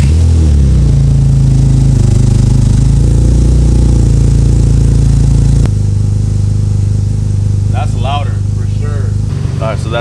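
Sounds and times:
car engine idling: 0:00.0 - 0:10.0.

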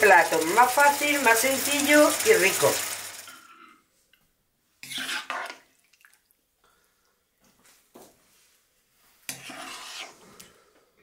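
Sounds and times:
wet squelching scrape: 0:04.8 - 0:05.7, 0:09.3 - 0:10.4.

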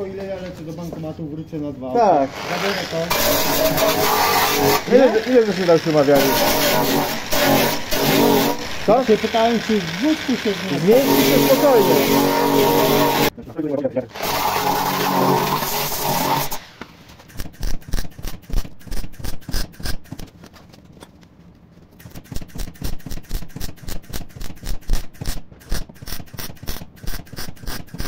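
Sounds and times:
wire wheel grinder brushing metal: 0:02.0 - 0:13.3, 0:14.1 - 0:16.7
welding crackling bursts: 0:02.2 - 0:13.3, 0:14.1 - 0:20.2, 0:22.0 - 0:28.0.

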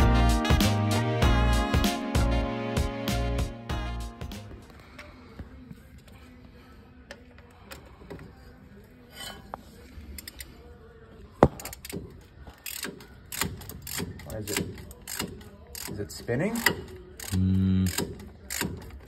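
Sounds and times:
ratchet wrench clicking: 0:11.6 - 0:19.0.

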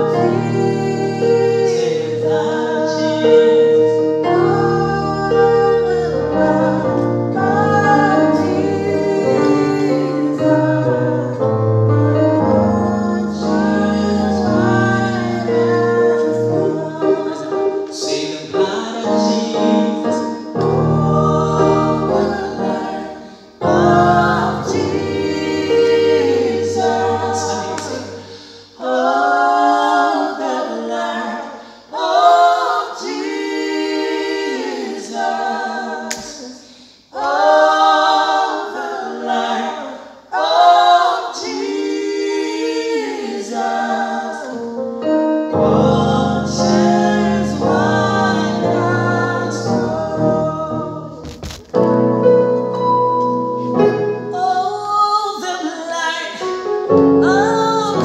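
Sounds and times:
man singing a hymn: 0:18.0 - 0:20.3
electronic keyboard: 0:44.6 - 0:54.6.

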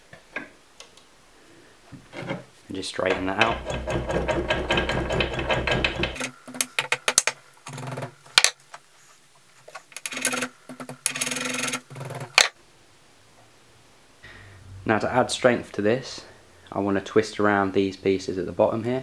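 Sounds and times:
metal scraping and rattling: 0:02.0 - 0:07.0, 0:09.7 - 0:12.5.

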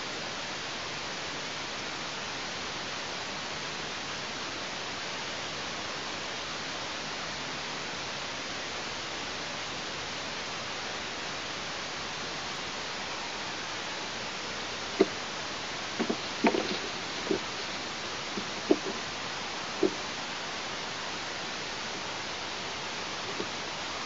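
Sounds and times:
microphone hiss: 0:00.0 - 0:24.0
sharp knocks: 0:16.0 - 0:17.5, 0:18.4 - 0:19.0.

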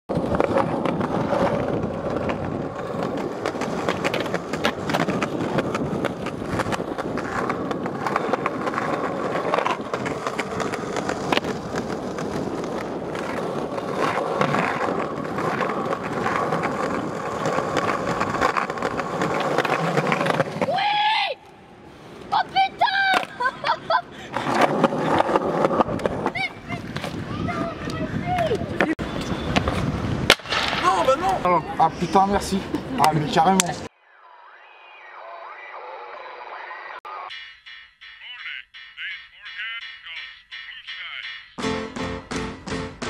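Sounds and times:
skateboard clacks: 0:00.1 - 0:20.8, 0:24.3 - 0:31.5
skateboard wheels rolling on stone: 0:00.1 - 0:21.2, 0:21.9 - 0:33.9.

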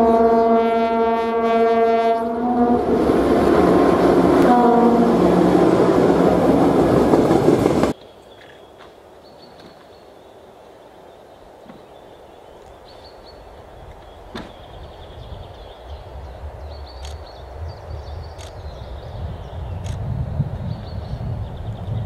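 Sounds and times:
diesel locomotive horn: 0:00.0 - 0:06.9
locomotive engine and wheels on rail: 0:00.0 - 0:22.0.

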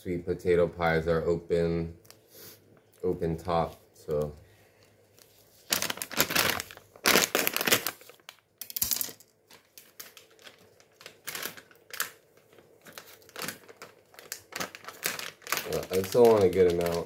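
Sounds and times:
plastic bag crinkling: 0:05.2 - 0:17.0.

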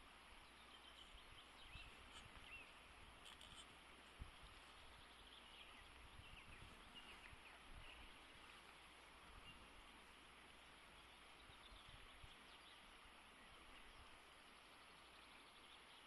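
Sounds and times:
flowing river water: 0:00.0 - 0:16.0.

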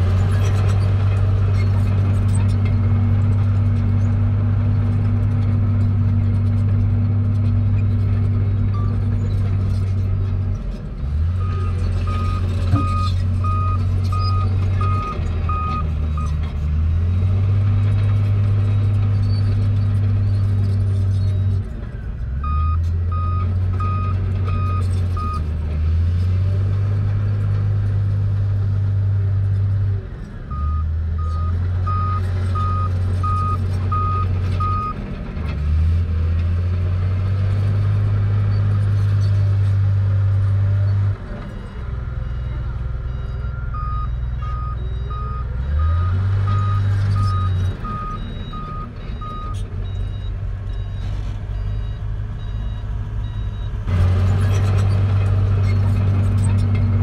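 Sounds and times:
bulldozer diesel engine running: 0:00.0 - 0:57.0
reversing alarm beeping: 0:42.3 - 0:53.7.

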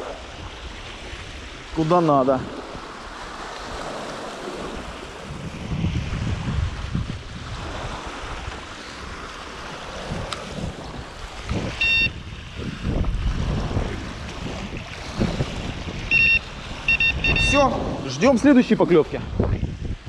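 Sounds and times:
water lapping: 0:00.0 - 0:20.0
wind gusting on microphone: 0:00.0 - 0:20.0
short high-pitched tone: 0:11.8 - 0:12.1, 0:16.1 - 0:17.7.

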